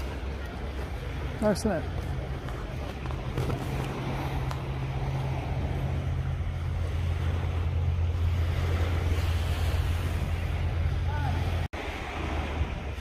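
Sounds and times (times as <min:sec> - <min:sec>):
wind blowing across microphone: 0:00.0 - 0:13.0.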